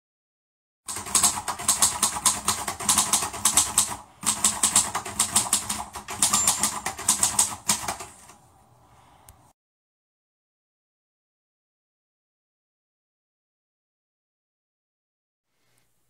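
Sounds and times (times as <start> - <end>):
rapid keyboard-like clicking: 0.9 - 8.4.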